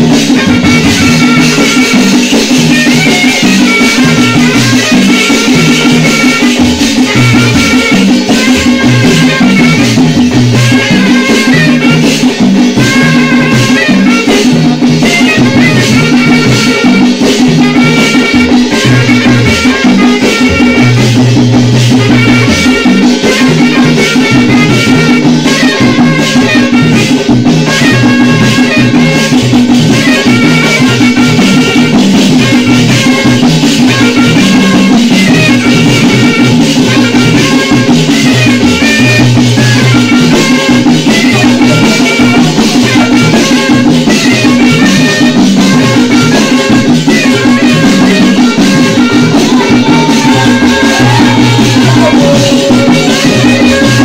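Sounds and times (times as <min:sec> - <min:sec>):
drum: 0:00.0 - 0:54.0
marimba music: 0:35.9 - 0:54.0.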